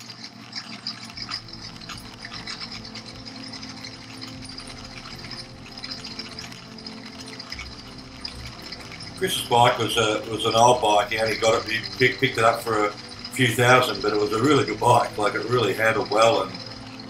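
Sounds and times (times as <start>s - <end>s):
rattling and ticking from vibration: 0.0s - 17.0s.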